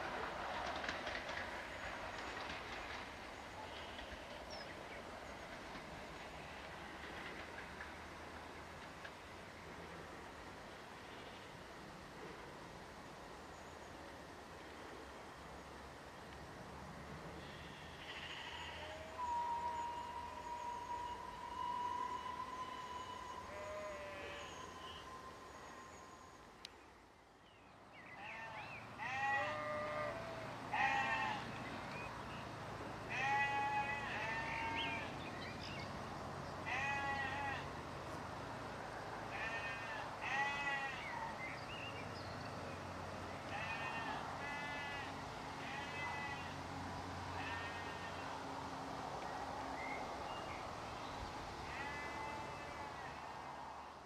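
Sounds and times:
sheep bleating: 0:28.2 - 0:31.4, 0:33.1 - 0:35.1, 0:36.7 - 0:37.7, 0:39.3 - 0:41.1, 0:43.5 - 0:46.5, 0:47.4 - 0:48.2, 0:51.7 - 0:53.2.

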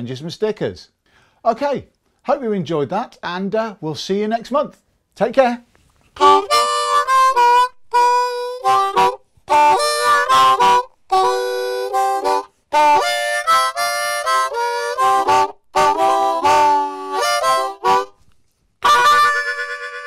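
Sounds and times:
breaths: 0:01.0 - 0:02.3
harmonica chords: 0:06.2 - 0:20.0.

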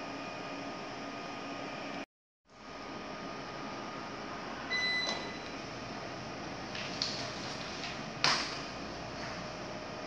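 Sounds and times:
office room tone hiss: 0:02.7 - 0:10.0
high electronic beep: 0:04.7 - 0:05.4.

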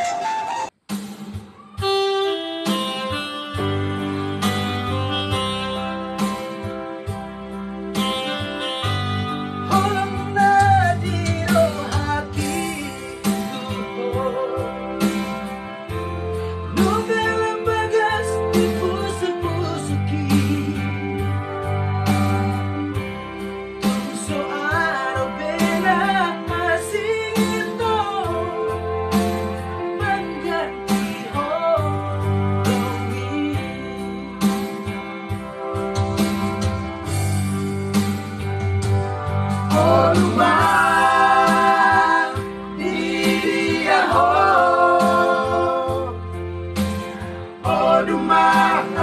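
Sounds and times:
electronic keyboard chords and beat: 0:00.0 - 0:49.0
man singing: 0:09.7 - 0:15.1, 0:16.7 - 0:21.3, 0:24.1 - 0:28.9, 0:29.8 - 0:34.0, 0:39.7 - 0:46.2, 0:47.6 - 0:49.0
men singing in harmony: 0:39.7 - 0:46.2, 0:47.6 - 0:49.0.

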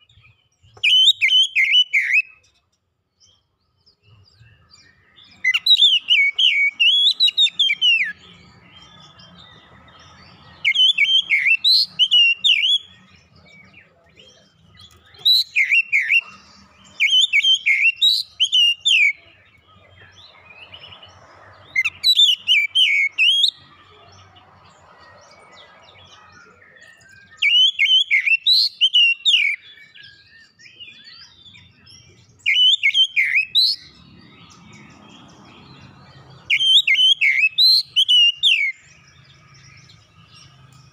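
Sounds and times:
bird singing whistled phrases: 0:00.0 - 0:02.4, 0:04.4 - 0:08.3, 0:10.6 - 0:13.6, 0:14.4 - 0:19.4, 0:21.7 - 0:23.6, 0:26.0 - 0:34.0, 0:36.5 - 0:39.0.

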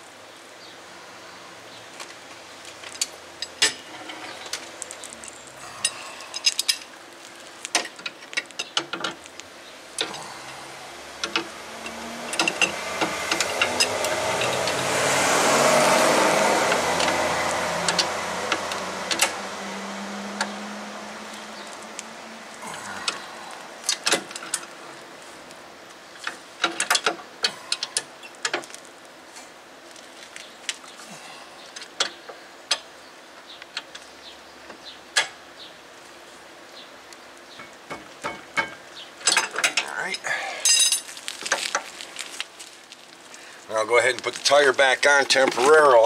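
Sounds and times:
metal hand tools clinking: 0:40.6 - 0:41.1.

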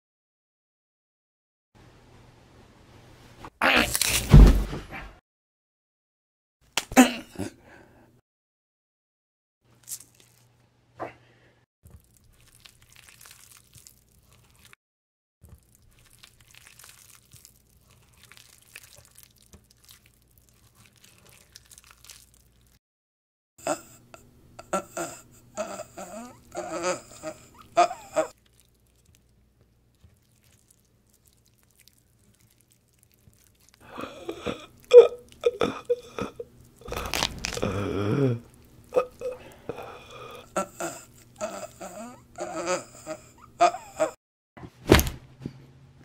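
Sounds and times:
wet crunching and squelching: 0:09.7 - 0:10.5, 0:11.8 - 0:14.8, 0:15.4 - 0:22.8, 0:28.3 - 0:34.0, 0:36.4 - 0:37.8.

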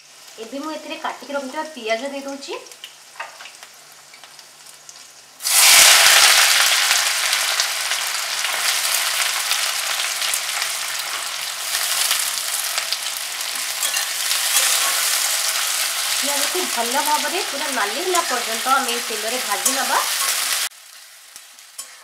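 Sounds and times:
onions sizzling in hot oil: 0:00.0 - 0:22.0
spatula stirring: 0:13.5 - 0:16.0.

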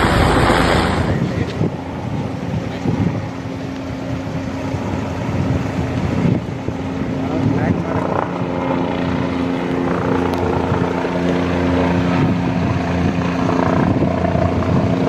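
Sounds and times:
helicopter rotor and engine: 0:00.0 - 0:15.0.

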